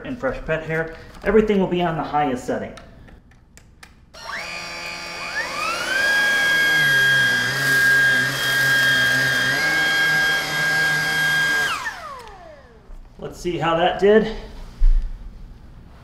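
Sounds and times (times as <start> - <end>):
vacuum cleaner motor whine: 4.2 - 13.0
vacuum head on carpet: 4.2 - 13.0.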